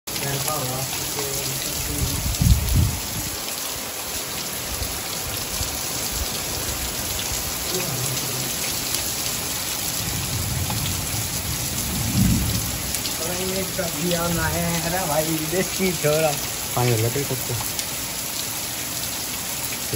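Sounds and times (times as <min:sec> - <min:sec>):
heavy rain on concrete roof: 0:00.1 - 0:19.9
low rumbles: 0:00.6 - 0:03.4, 0:06.1 - 0:15.4.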